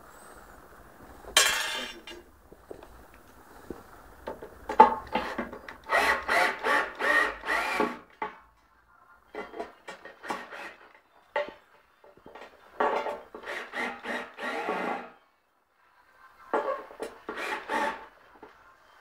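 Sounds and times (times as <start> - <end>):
power drill driving screws: 5.8 - 8.0, 13.4 - 15.2, 17.3 - 18.1.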